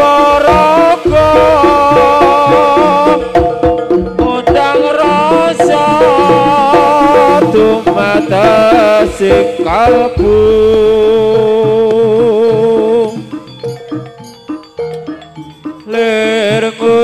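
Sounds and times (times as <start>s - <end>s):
hand drum strokes: 0.0s - 17.0s
wavering sustained melody: 0.0s - 17.0s.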